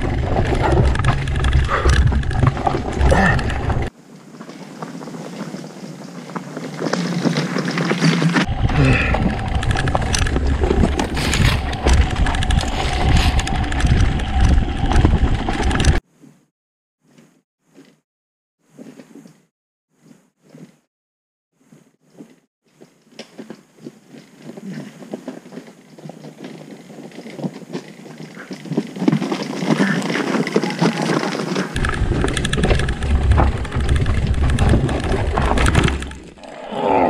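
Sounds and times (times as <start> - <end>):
motorcycle rumble: 0.0 - 3.9, 8.4 - 16.0, 31.8 - 36.4
bike rattling: 0.0 - 16.0, 26.4 - 36.5
wind buffeting microphone: 8.4 - 16.0.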